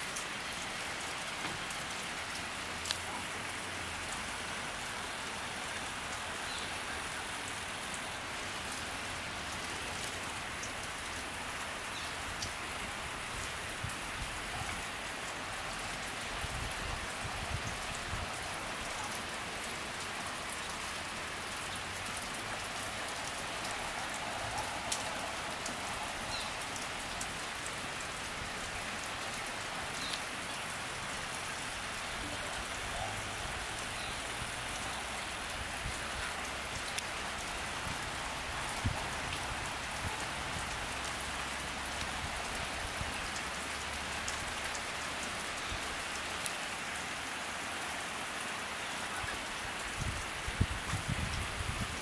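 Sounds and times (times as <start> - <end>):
steady rain falling: 0.0 - 52.0
single raindrops ticking: 1.3 - 3.1.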